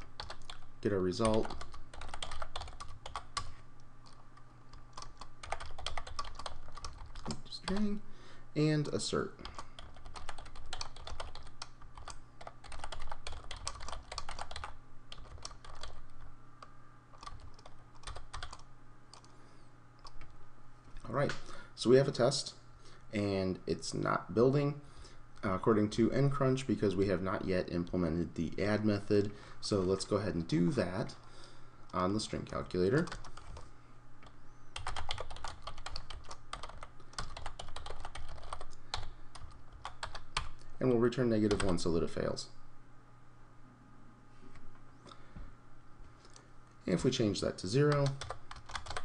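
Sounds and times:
typing on computer keyboard: 0:00.1 - 0:00.6, 0:01.2 - 0:03.5, 0:04.9 - 0:07.4, 0:09.5 - 0:16.0, 0:17.2 - 0:19.3, 0:34.8 - 0:40.5, 0:48.0 - 0:49.0.

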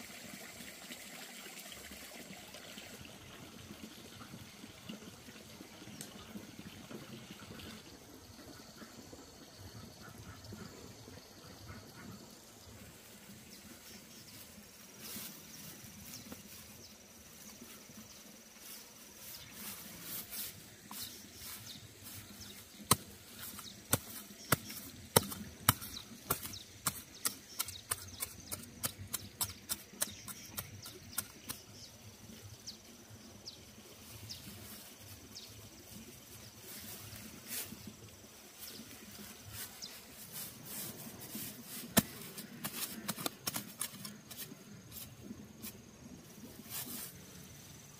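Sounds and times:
dry straw rustling and crackling: 0:13.2 - 0:28.2, 0:34.0 - 0:47.4
knife digging into soil: 0:20.1 - 0:31.7, 0:40.2 - 0:45.8
hands pressing earth: 0:20.2 - 0:31.6, 0:40.6 - 0:45.8.

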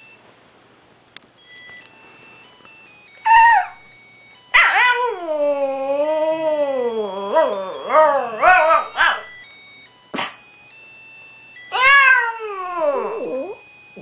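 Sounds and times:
faint electronic toy tune: 0:01.4 - 0:14.0
dog howling: 0:03.3 - 0:03.8, 0:04.6 - 0:09.2, 0:11.7 - 0:13.6.

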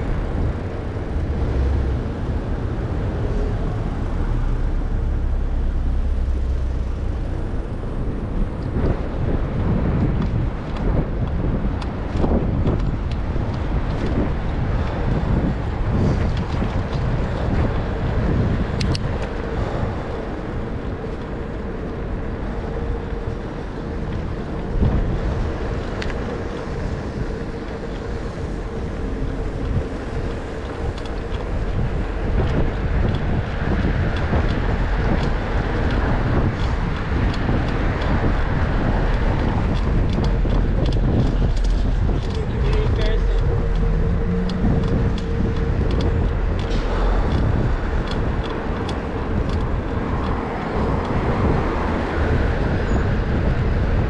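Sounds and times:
wind buffeting microphone: 0:00.0 - 0:54.0
light ticks: 0:29.4 - 0:38.4.

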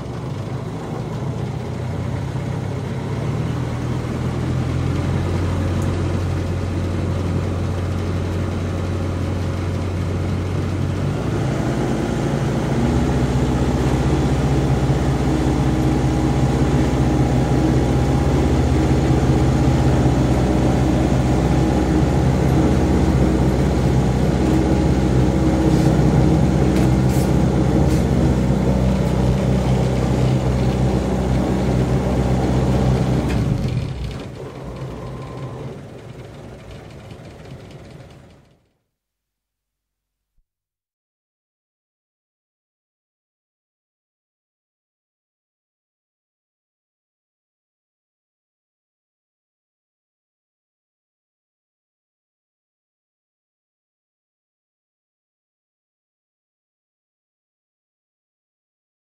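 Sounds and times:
boat diesel engine droning: 0:00.0 - 0:38.7.

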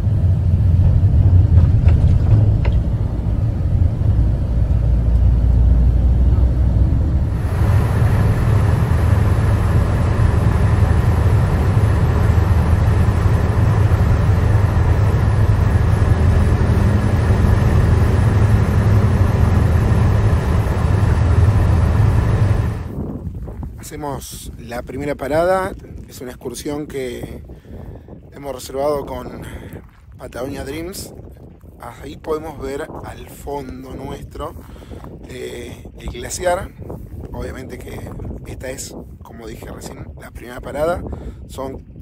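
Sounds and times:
vehicle rumble from inside cabin: 0:00.0 - 0:22.9.

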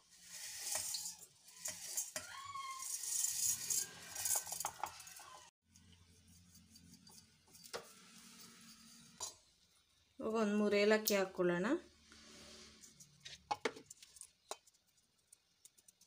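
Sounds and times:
dry flakes rattling into jar: 0:00.3 - 0:05.2.

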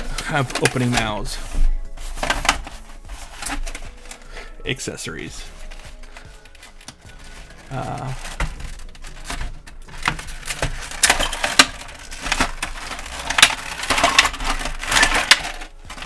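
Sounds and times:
plastic tray crackling: 0:00.0 - 0:16.0
plastic pieces knocking: 0:05.6 - 0:16.0.

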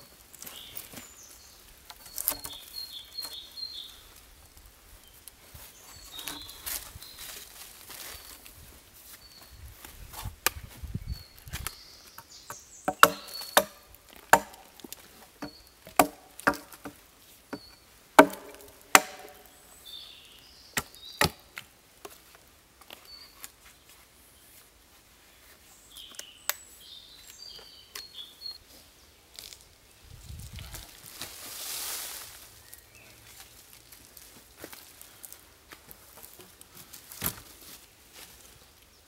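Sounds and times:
hatchet striking wood: 0:12.5 - 0:14.8, 0:15.4 - 0:19.5, 0:20.8 - 0:21.4.

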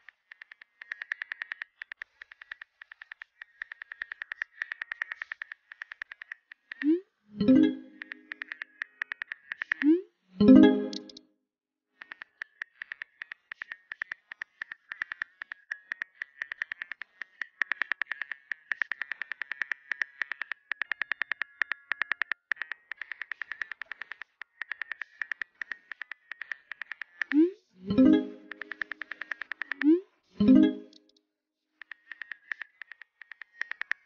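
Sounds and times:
phone keyboard typing clicks: 0:00.0 - 0:06.9, 0:07.5 - 0:09.9, 0:12.0 - 0:31.1, 0:31.8 - 0:34.0.

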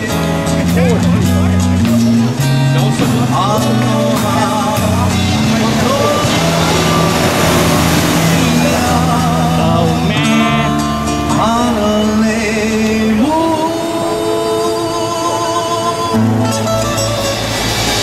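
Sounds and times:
song with singing and guitar: 0:00.0 - 0:18.0.

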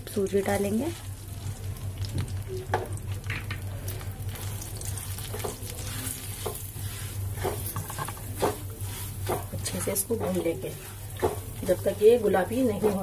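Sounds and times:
semolina sizzling in ghee: 0:00.0 - 0:13.0
steady low hum: 0:00.0 - 0:13.0
spatula scraping pan: 0:05.2 - 0:13.0.

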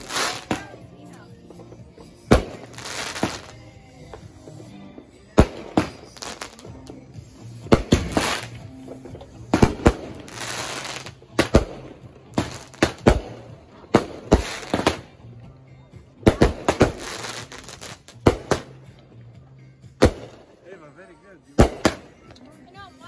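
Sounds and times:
fireworks bangs: 0:00.0 - 0:00.8, 0:02.2 - 0:03.6, 0:05.3 - 0:06.8, 0:07.6 - 0:08.7, 0:09.4 - 0:15.1
fireworks crackling: 0:00.0 - 0:15.1, 0:16.2 - 0:18.7, 0:21.6 - 0:22.4.

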